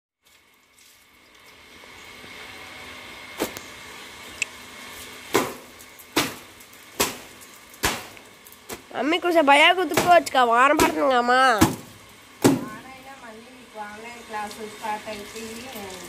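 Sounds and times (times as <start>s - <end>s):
rain hiss: 4.4s - 16.0s
wet laundry slapping concrete: 5.3s - 9.0s, 9.8s - 12.8s.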